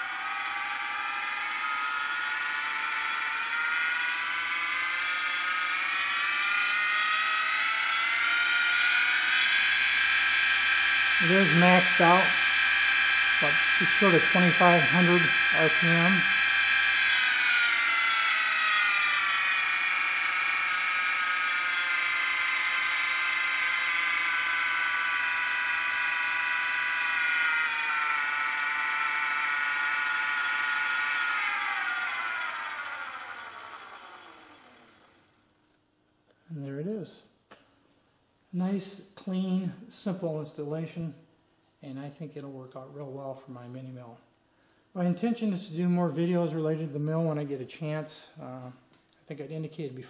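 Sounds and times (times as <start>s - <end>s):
mill spindle motor whine: 0.0s - 35.7s.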